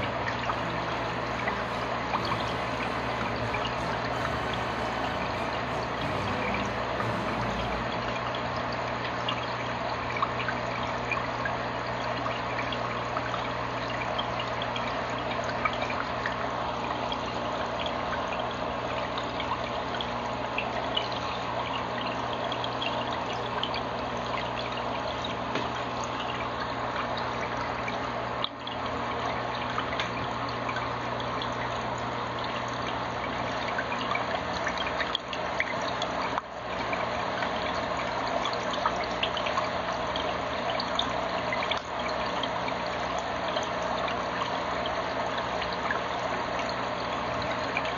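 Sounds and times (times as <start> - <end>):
low steady hum: 0.0 - 9.0
filter water trickling and splashing: 0.0 - 47.9.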